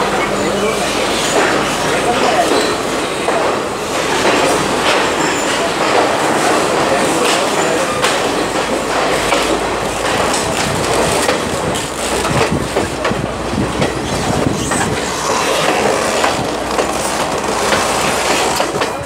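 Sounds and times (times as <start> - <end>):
clicks and knocks of train: 0.0 - 19.0
train wheels rumbling on rails: 0.0 - 19.0.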